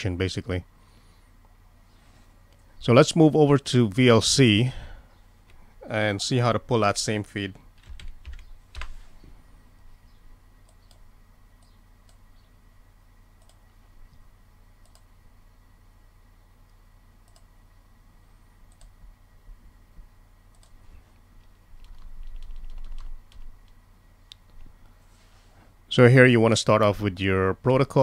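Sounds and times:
keyboard keystrokes: 0:07.8 - 0:08.9, 0:21.8 - 0:23.8
computer mouse clicks: 0:10.6 - 0:12.2, 0:13.4 - 0:13.6, 0:14.8 - 0:15.1, 0:17.2 - 0:17.5, 0:18.7 - 0:19.0, 0:20.5 - 0:20.8.

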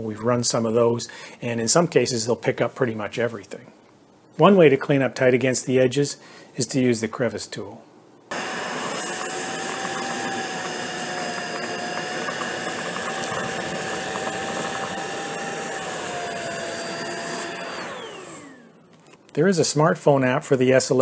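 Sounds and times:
vacuum cleaner motor whine: 0:08.3 - 0:19.1.

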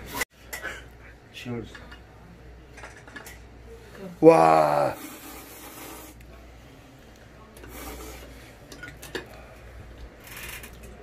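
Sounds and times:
man slurping noodles: 0:04.6 - 0:06.2.

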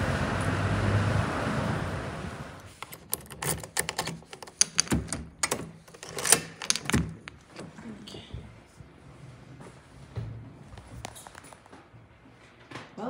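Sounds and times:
key turning in deadbolt lock: 0:02.7 - 0:07.7
keys jingling: 0:02.7 - 0:07.7.

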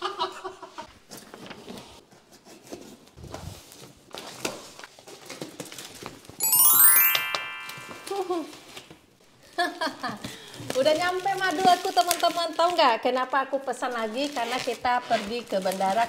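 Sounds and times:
rising bright ringing notes: 0:06.4 - 0:08.4.

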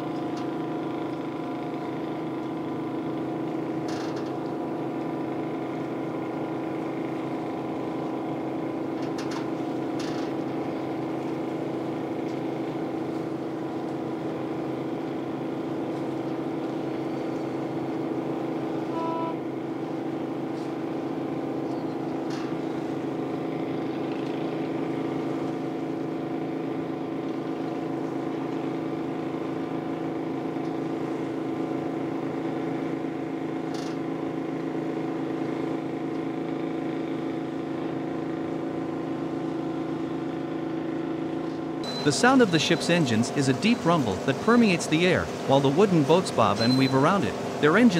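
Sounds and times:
boat engine humming: 0:00.0 - 0:47.9
high beep: 0:18.9 - 0:19.4, 0:41.8 - 0:47.8.

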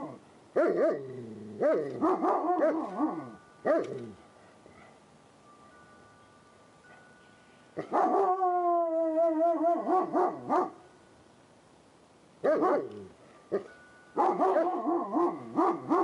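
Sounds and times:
dog howling and yelping: 0:07.9 - 0:10.7.

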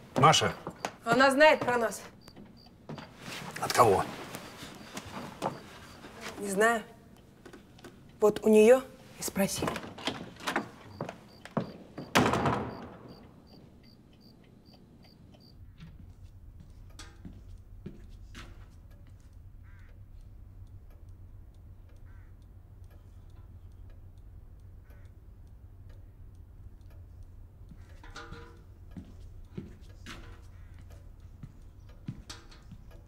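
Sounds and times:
light footsteps: 0:00.0 - 0:06.7, 0:09.4 - 0:12.1, 0:15.7 - 0:19.4, 0:27.7 - 0:33.0
low steady hum: 0:00.0 - 0:33.0
knocks and heavy thud: 0:12.0 - 0:13.2.

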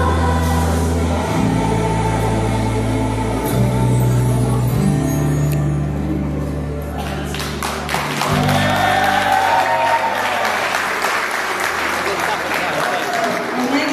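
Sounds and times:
audience applause: 0:07.0 - 0:13.9
audience cheering: 0:08.0 - 0:13.8.

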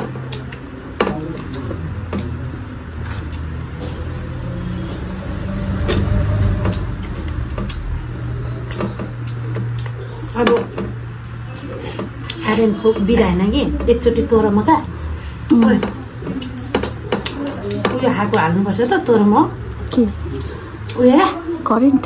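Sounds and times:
chewing and fingers clicking: 0:00.1 - 0:02.4, 0:05.6 - 0:10.2, 0:16.3 - 0:17.9.

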